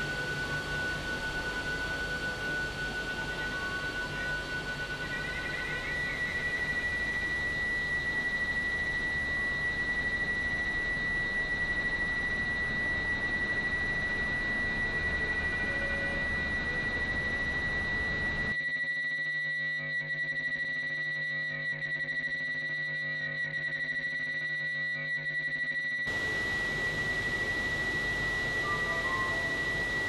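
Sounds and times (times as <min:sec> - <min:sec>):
high-pitched electronic tone: 0:25.1 - 0:30.0
constant hiss: 0:26.1 - 0:30.0.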